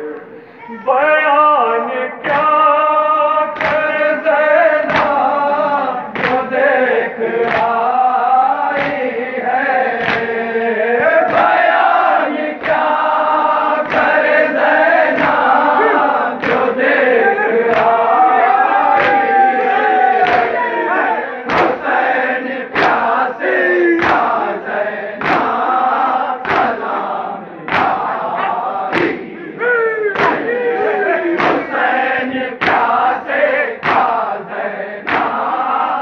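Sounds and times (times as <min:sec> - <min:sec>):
men chanting a lament: 0:00.0 - 0:36.0
hands striking chests: 0:30.1 - 0:30.5, 0:31.4 - 0:31.7.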